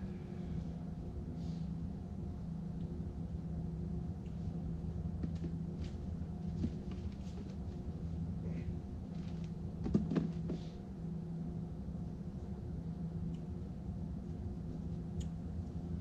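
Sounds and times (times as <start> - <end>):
low machinery hum: 0.0 - 16.0.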